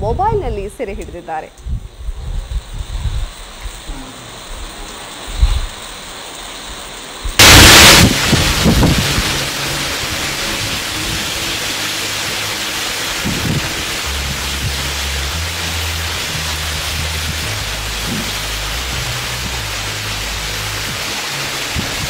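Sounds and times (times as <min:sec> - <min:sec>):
heavy rain hissing: 0:01.8 - 0:22.0
rainwater streaming over rock: 0:01.9 - 0:22.0
low background music: 0:07.6 - 0:22.0.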